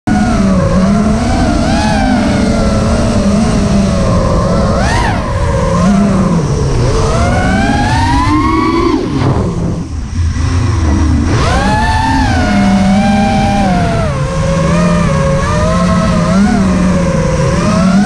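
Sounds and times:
drone motors whining: 0.1s - 18.0s.

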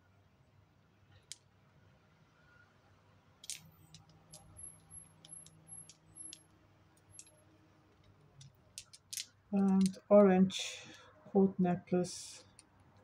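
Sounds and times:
beaded necklace clicking: 3.4s - 7.4s, 8.0s - 10.2s.

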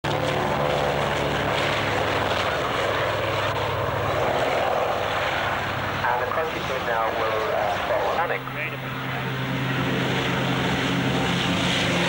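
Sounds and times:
propeller aircraft engine drone: 0.0s - 12.0s.

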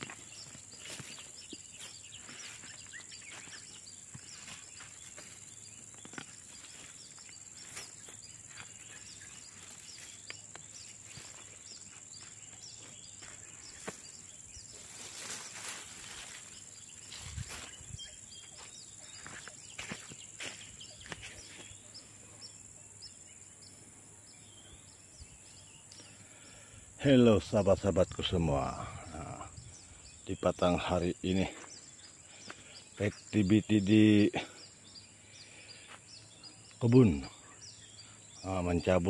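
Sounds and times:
insect chirps: 0.0s - 39.0s
insect drone: 0.0s - 39.0s.

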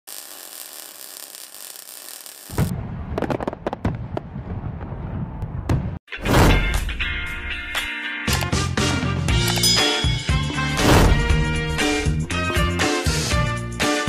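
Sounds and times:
sparkler-like hiss: 0.1s - 2.7s
firework cracks and pops: 0.1s - 4.5s
loud firework burst: 0.1s - 4.9s.

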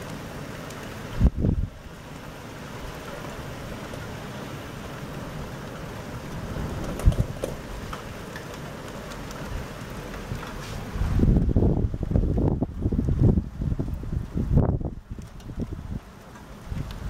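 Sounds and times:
steady rain: 0.0s - 17.0s
wind: 0.0s - 17.0s
wind buffeting microphone: 1.1s - 1.9s, 5.2s - 17.0s.

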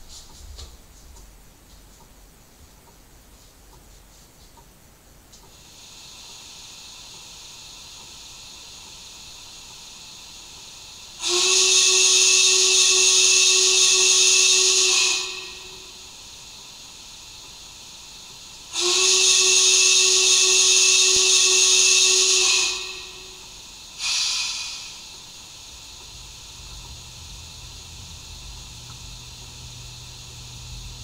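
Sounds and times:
steam hissing: 5.5s - 31.0s
steam whistle blast: 11.2s - 16.2s, 18.7s - 25.1s.

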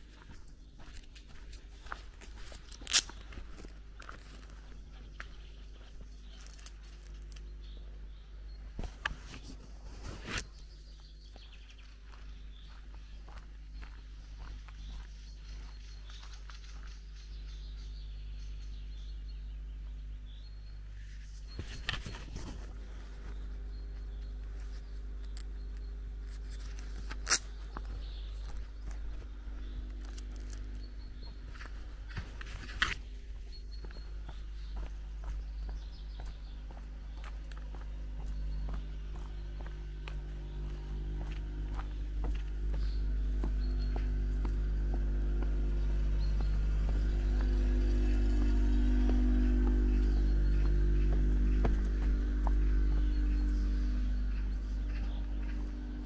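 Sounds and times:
footsteps crunching on gravel: 0.0s - 18.0s, 21.0s - 56.0s
sharp crunch or snap: 2.6s - 3.4s, 26.3s - 27.8s
low rumble: 33.5s - 56.0s.

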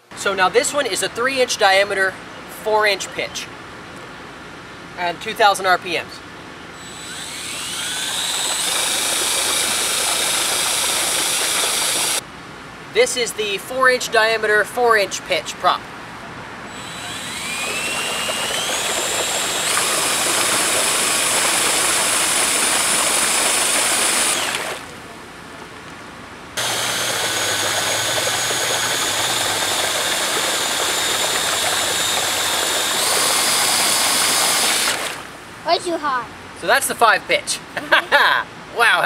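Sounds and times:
drill motor whining: 6.8s - 12.2s, 16.7s - 24.9s, 26.6s - 35.2s
water churning: 6.8s - 12.2s, 16.7s - 25.1s, 26.6s - 35.5s.

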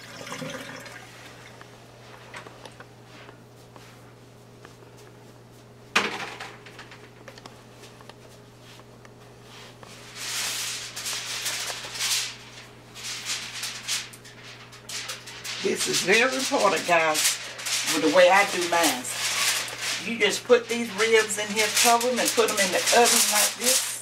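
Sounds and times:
steady low hum: 0.0s - 24.0s
crinkling and rustling material: 6.9s - 24.0s.

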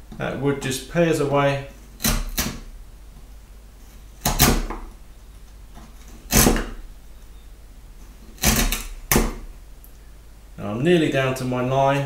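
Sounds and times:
chisel crunching wood chips: 2.0s - 2.7s, 4.2s - 4.9s, 5.8s - 6.8s, 8.2s - 9.5s.

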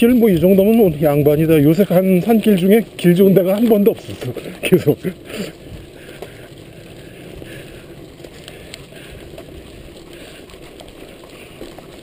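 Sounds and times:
bike clicks and rattles: 0.0s - 12.0s
bike tyres rumbling on gravel: 0.0s - 12.0s.

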